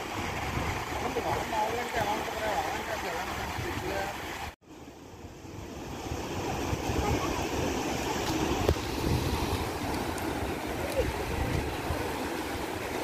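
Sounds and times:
wind on microphone: 0.0 - 2.1, 5.5 - 13.0
surf breaking on shore: 5.6 - 13.0.

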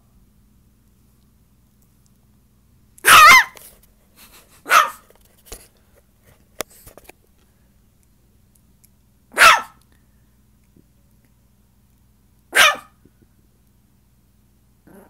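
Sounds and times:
small dog barking high-pitched: 3.0 - 3.6, 4.6 - 5.0, 9.3 - 9.8, 12.5 - 13.0.

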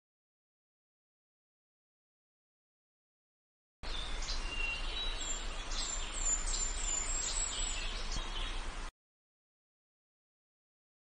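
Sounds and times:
small birds chirping: 3.8 - 8.9.

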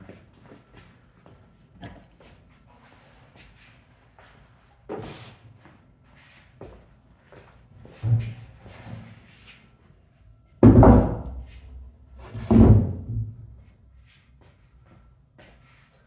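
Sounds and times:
heavy thumps: 10.6 - 11.5.

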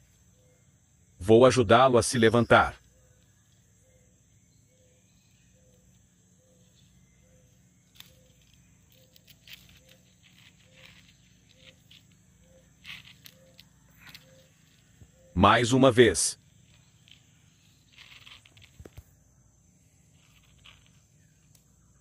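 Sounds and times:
scratches and taps on stone floor: 7.9 - 15.1, 16.7 - 19.1, 20.2 - 21.7.

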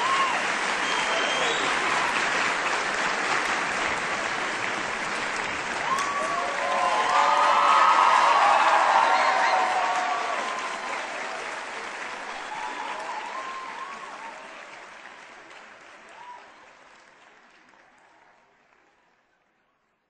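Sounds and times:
audience cheering: 0.0 - 2.8, 4.6 - 15.1, 16.0 - 16.6
audience applauding: 0.0 - 19.6.

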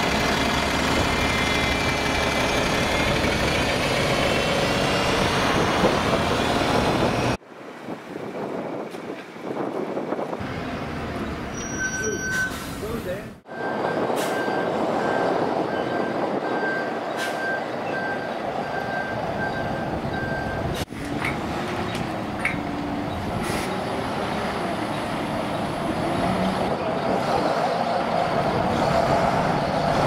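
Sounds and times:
bus diesel engine running: 0.0 - 7.4, 9.4 - 30.0
high repeated beep: 11.6 - 12.6.

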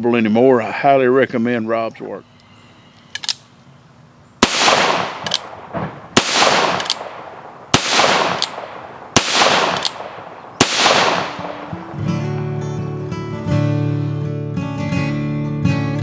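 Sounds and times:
revolver shots echoing: 4.4 - 12.6
revolver hammer cocking click: 4.6 - 11.8.

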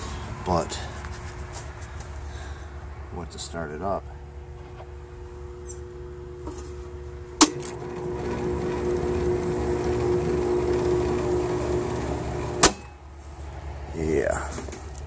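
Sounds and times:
condensing unit humming: 0.0 - 15.0.

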